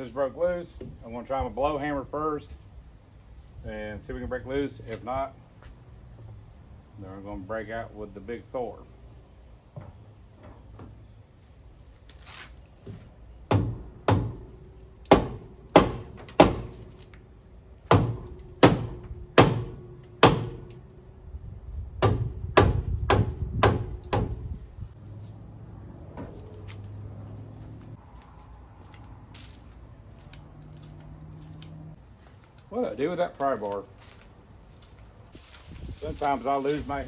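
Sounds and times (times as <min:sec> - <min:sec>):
hammer striking brake drum: 0:17.9 - 0:20.7.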